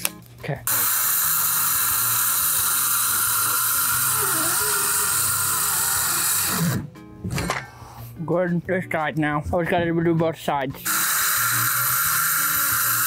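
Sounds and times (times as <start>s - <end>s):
circular saw cutting plywood: 0.7s - 6.9s, 10.8s - 13.0s.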